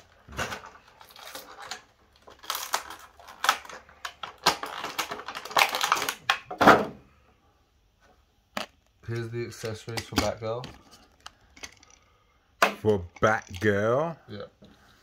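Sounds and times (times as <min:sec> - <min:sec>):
plastic and cardboard crinkling: 0:00.0 - 0:06.6
packaging clicks and snaps: 0:00.4 - 0:06.5.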